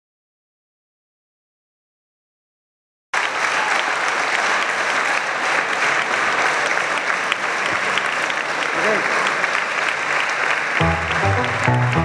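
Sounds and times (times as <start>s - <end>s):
audience applauding: 3.2s - 12.0s.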